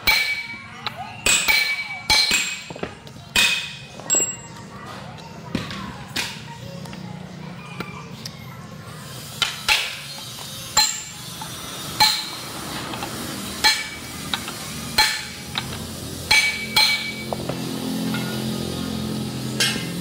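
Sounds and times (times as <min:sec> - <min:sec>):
hammer striking metal rivets: 0:00.0 - 0:00.6, 0:01.2 - 0:02.8, 0:10.8 - 0:11.2, 0:12.0 - 0:12.5, 0:13.6 - 0:17.4.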